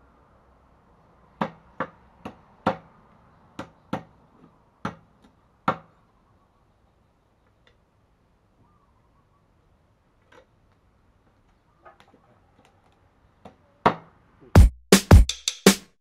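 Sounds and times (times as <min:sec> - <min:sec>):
cleaver chopping on wooden block: 0:01.4 - 0:02.9, 0:03.6 - 0:04.2, 0:04.8 - 0:05.9.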